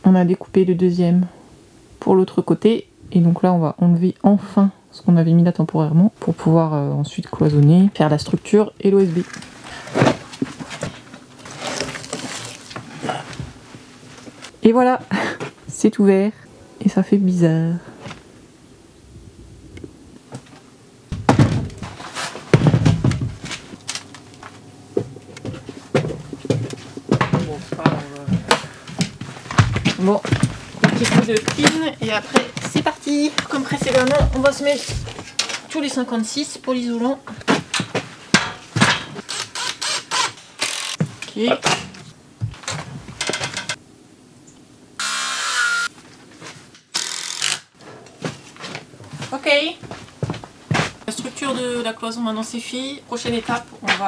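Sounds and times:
wooden knocks and thumps: 21.1s - 23.6s, 24.9s - 31.8s
cordless drill driving into wood: 39.3s - 41.0s, 45.0s - 45.9s, 46.9s - 47.7s.

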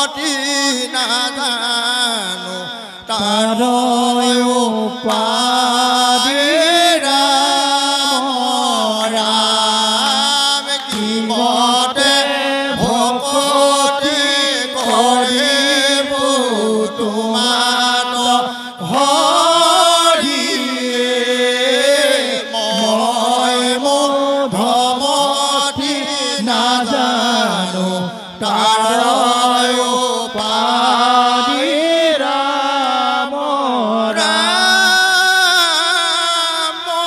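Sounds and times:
men chanting together: 0.0s - 37.0s.

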